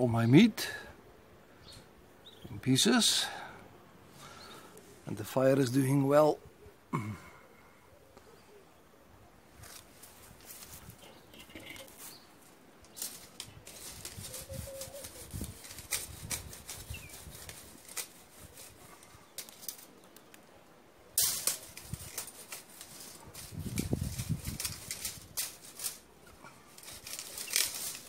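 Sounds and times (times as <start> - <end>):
tool scraping wire grill grid: 12.9 - 19.9, 21.2 - 28.0.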